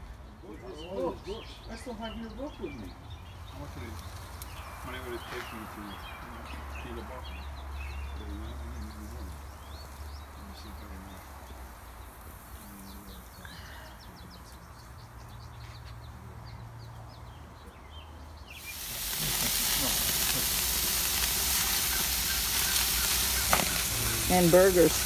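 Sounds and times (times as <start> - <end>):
songbirds chirping: 0.0 - 25.0
food sizzling on a grill: 3.5 - 15.9, 18.5 - 25.0.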